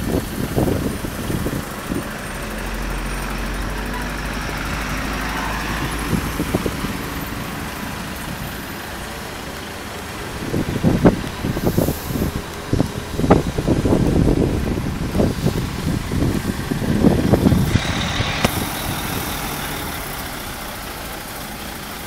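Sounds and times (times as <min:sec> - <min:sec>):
road traffic noise: 0:00.0 - 0:22.0
truck diesel engine running: 0:00.0 - 0:22.0.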